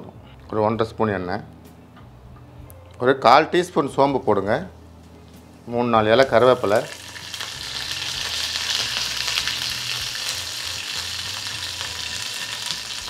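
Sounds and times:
seeds sizzling in hot oil: 6.2 - 13.0.

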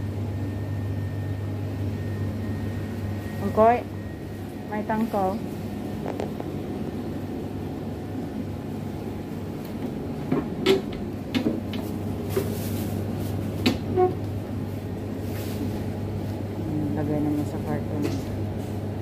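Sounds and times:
low hum: 0.0 - 11.3.

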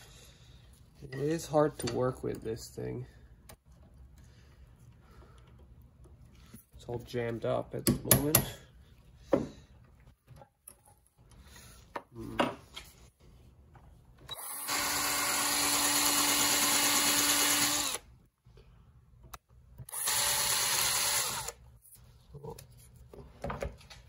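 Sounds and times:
cordless drill drilling metal: 14.3 - 18.1, 19.8 - 21.6.

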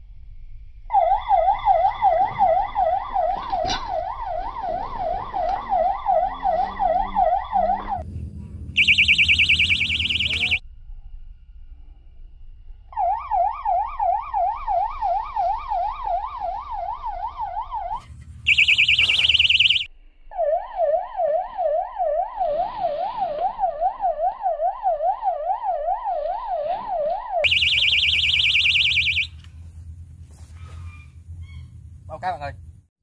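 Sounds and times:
electronic alarm warbling tone: 0.9 - 8.0, 8.8 - 10.6, 12.9 - 29.4
high-pitched warble: 0.9 - 8.0, 8.8 - 10.6, 12.9 - 29.4.

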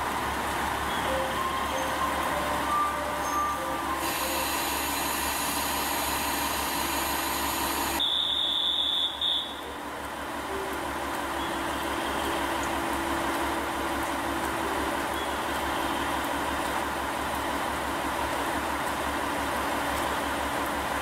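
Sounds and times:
diesel engine idling hum: 0.0 - 21.0
short chime tones: 0.9 - 4.5
high steady beep: 2.7 - 9.6.

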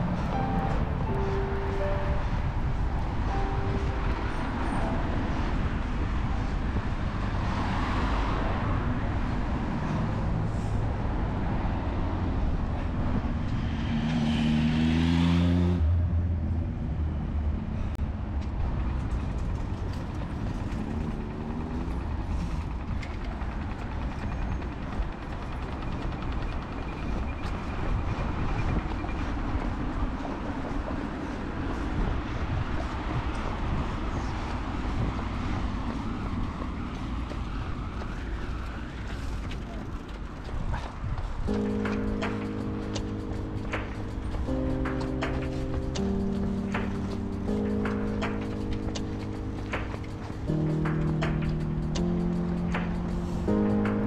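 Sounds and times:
street traffic rumble: 0.0 - 54.0
vehicle passing close: 13.2 - 17.7.

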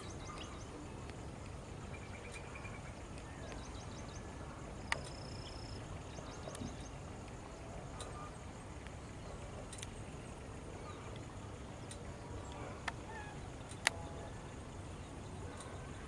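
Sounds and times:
low background rumble: 0.0 - 16.0
small birds chirping: 0.0 - 16.0.

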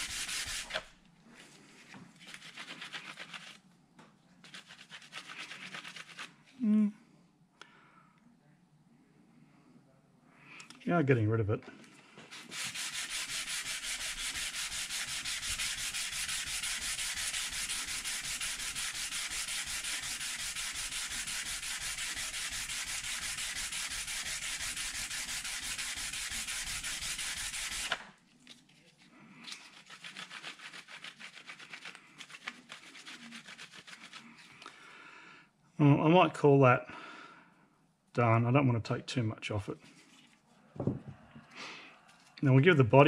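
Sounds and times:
metal part rubbing on abrasive paper: 0.0 - 1.0, 2.2 - 3.6, 4.4 - 6.4, 12.3 - 28.0, 29.4 - 34.5.

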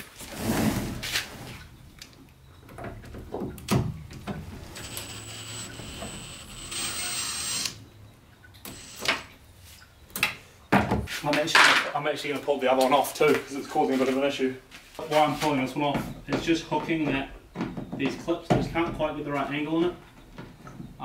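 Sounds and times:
cordless drill whining: 4.6 - 7.8, 8.7 - 9.3.

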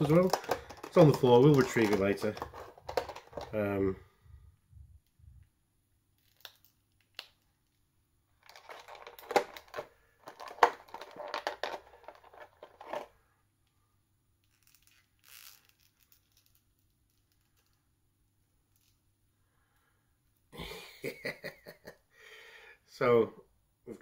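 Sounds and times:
plastic crinkling and rustling: 0.0 - 3.6, 8.4 - 13.1.

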